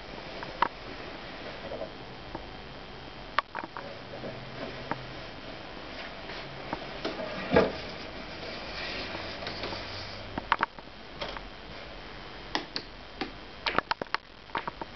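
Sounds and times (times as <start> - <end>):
small clicks and knocks: 3.4 - 5.0, 10.4 - 11.5, 12.5 - 14.9.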